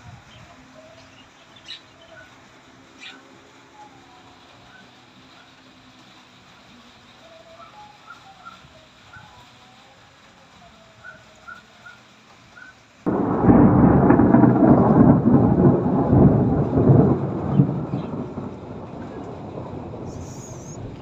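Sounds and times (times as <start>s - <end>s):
thunderclap rumbling: 13.1s - 21.0s.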